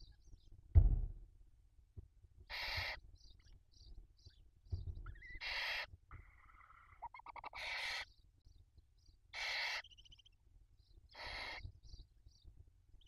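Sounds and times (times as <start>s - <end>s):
owl chicks rasping hisses: 2.5s - 3.0s, 5.4s - 5.9s, 7.4s - 8.1s, 9.4s - 9.9s, 11.2s - 11.6s
high chittering calls: 5.1s - 8.2s, 9.4s - 10.4s, 11.1s - 12.0s.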